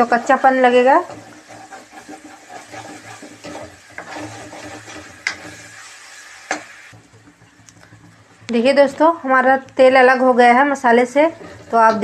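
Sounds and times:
metal spatula scraping pan: 0.0 - 6.8, 10.9 - 12.0
soft sizzle of frying: 0.0 - 12.0.

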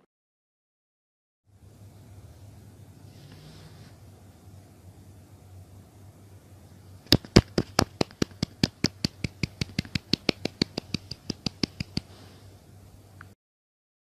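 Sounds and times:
fast sharp clicks: 7.1 - 12.1.

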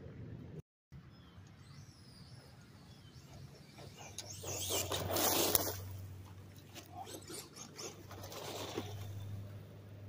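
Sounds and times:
rc truck motor whine: 1.0 - 9.9
tyres scraping dirt: 3.6 - 9.6.

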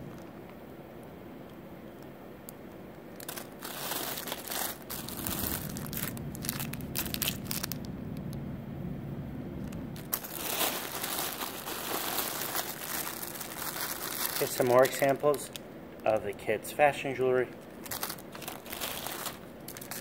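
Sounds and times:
plastic bags crinkling: 3.1 - 7.9, 10.0 - 20.0.

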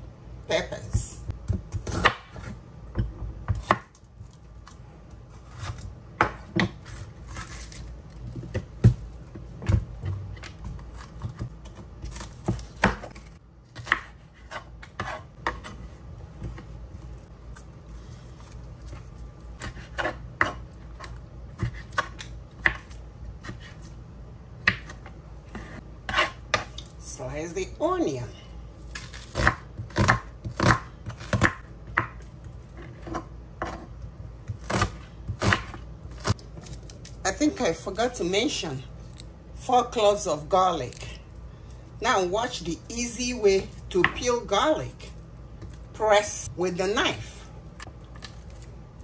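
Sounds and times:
knife chopping on wooden board: 1.5 - 4.0, 5.4 - 7.7, 8.4 - 15.8, 19.6 - 23.8, 24.6 - 26.7, 29.0 - 32.2, 34.5 - 36.4.

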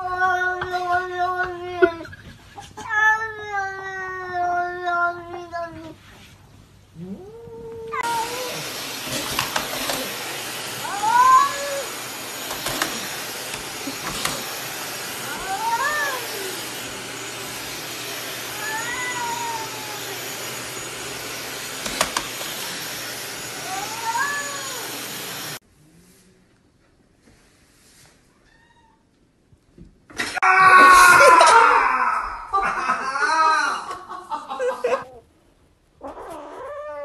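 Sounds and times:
cat meowing: 0.0 - 6.0, 7.0 - 10.2, 10.8 - 12.0, 15.2 - 17.3, 18.4 - 20.6, 23.6 - 25.0, 28.4 - 29.1
vacuum cleaner running: 7.9 - 25.6.

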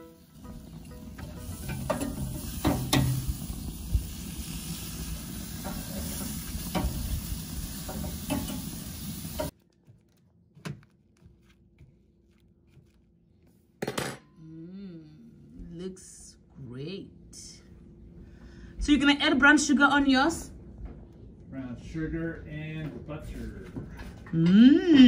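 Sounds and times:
chicken sizzling on a grill: 0.0 - 9.5.

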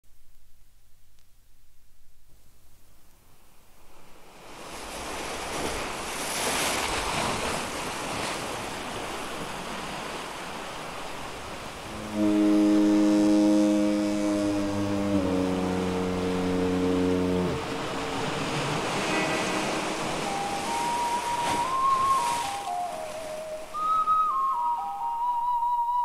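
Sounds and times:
waves washing in: 4.1 - 25.2
low horn chords: 11.8 - 23.7.

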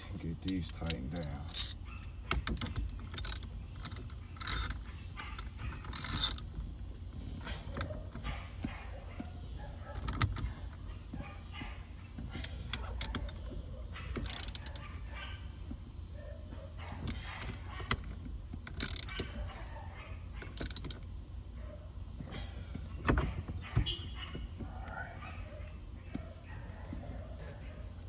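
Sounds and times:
hand tools clicking on bolts: 0.4 - 8.8, 14.1 - 14.9, 17.0 - 19.5, 20.4 - 21.1.

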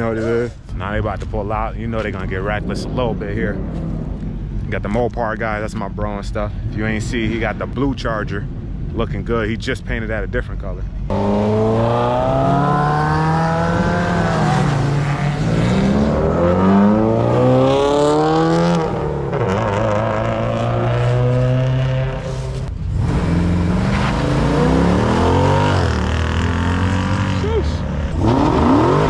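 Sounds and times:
cars accelerating hard: 11.1 - 29.0.

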